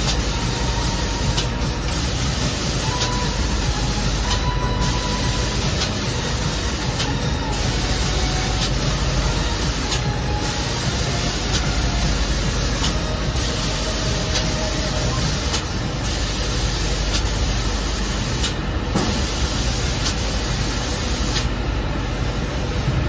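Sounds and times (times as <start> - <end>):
spray guns hissing: 0.0 - 21.5
machine running noise: 0.0 - 23.0.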